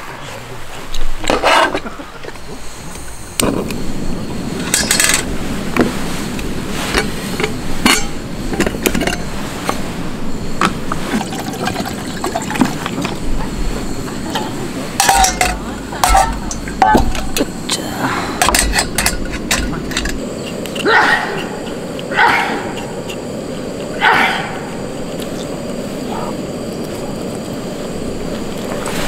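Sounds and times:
steady rushing noise: 0:00.0 - 0:29.0
metal cookware clinking: 0:07.4 - 0:09.3, 0:14.3 - 0:17.4, 0:18.4 - 0:20.2
water pouring into pot: 0:11.1 - 0:13.2.

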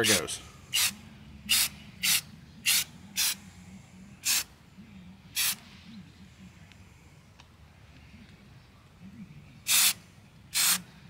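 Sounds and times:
spray paint can hissing: 0:00.8 - 0:03.4, 0:04.2 - 0:04.5, 0:05.4 - 0:05.6, 0:09.7 - 0:10.8.

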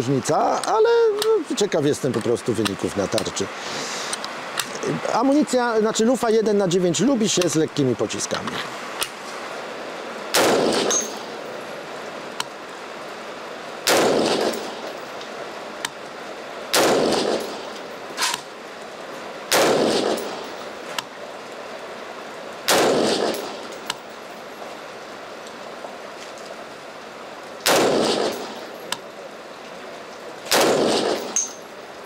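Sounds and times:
rifle shots with ringing echo: 0:10.3 - 0:11.4, 0:13.8 - 0:15.0, 0:16.7 - 0:17.8, 0:19.5 - 0:20.6, 0:22.7 - 0:23.8, 0:27.6 - 0:28.8, 0:30.5 - 0:31.7.

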